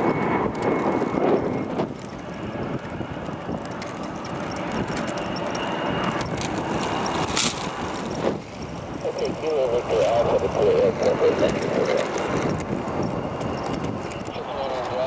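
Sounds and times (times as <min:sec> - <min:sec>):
distant jet engine rushing: 0:00.0 - 0:15.0
clicks and crackles: 0:03.2 - 0:07.8, 0:11.0 - 0:12.7.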